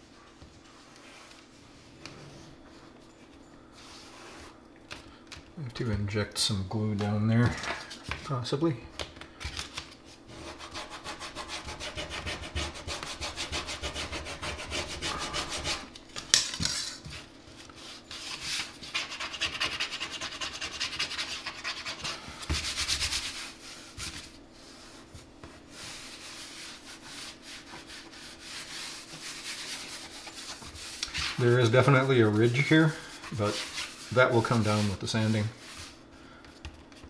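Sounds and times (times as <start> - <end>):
faint steady hum: 0.0 - 37.0
hands rubbing over wood panels: 17.1 - 36.1.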